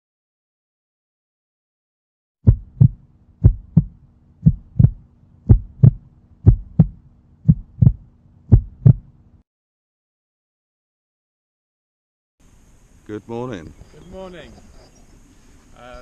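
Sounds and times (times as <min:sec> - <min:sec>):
heartbeat thumps: 0:02.4 - 0:09.2
faint steady hum: 0:02.5 - 0:09.4, 0:12.4 - 0:16.0.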